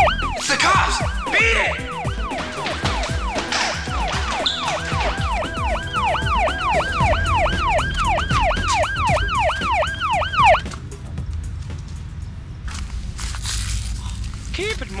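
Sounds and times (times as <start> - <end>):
police siren yelp: 0.0 - 10.7.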